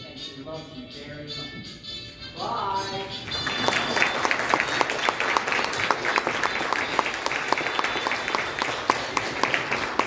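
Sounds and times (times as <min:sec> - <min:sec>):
children clapping: 0:03.2 - 0:10.0.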